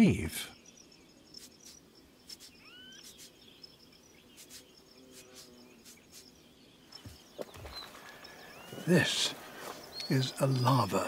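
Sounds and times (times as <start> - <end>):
insect chirring: 0.0 - 11.0
rising bird chirp: 0.0 - 11.0
faint ticks: 9.7 - 10.7.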